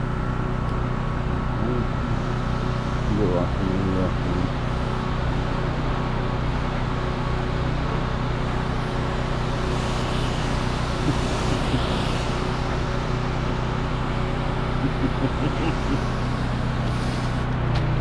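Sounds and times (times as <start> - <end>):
machine engine drone: 0.0 - 18.0
hiss: 8.5 - 17.6.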